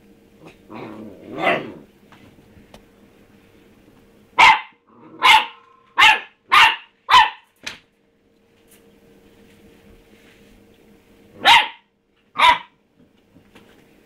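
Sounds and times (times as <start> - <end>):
puppy barking: 4.4 - 7.5, 11.4 - 12.8.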